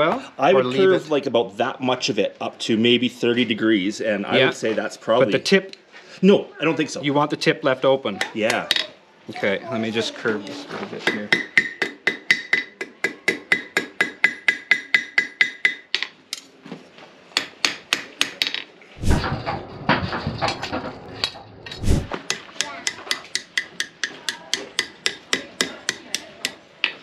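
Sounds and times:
hammer striking steel on anvil: 11.1 - 15.8
low rumbling noise: 19.0 - 22.2.

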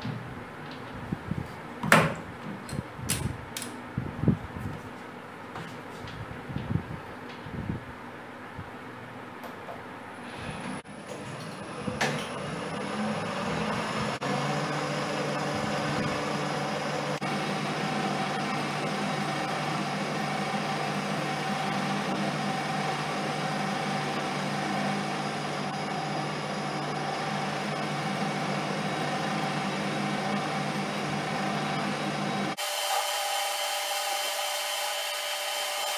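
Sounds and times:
metal lathe humming: 10.6 - 35.9.

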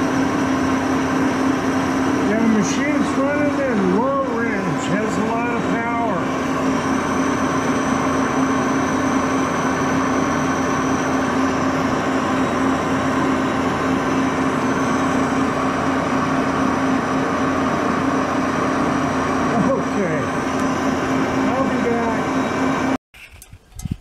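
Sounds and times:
lathe running: 0.0 - 23.0.

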